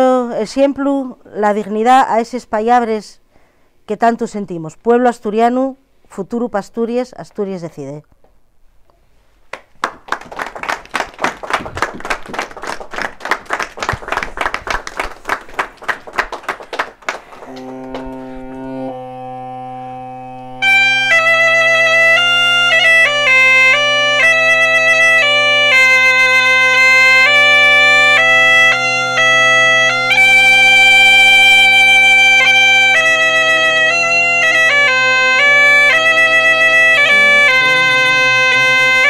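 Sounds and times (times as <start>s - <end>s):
hand-clapping: 9.5s - 18.3s
bagpipe drone: 17.4s - 39.0s
bagpipe melody: 17.4s - 39.0s.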